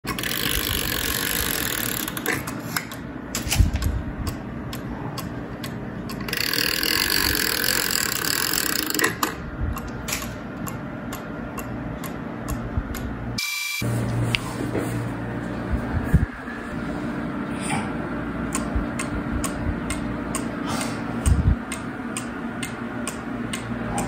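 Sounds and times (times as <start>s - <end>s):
clock chain rattling and ratcheting: 0.1s - 2.4s, 6.1s - 9.2s
clock ticking: 10.6s - 13.1s.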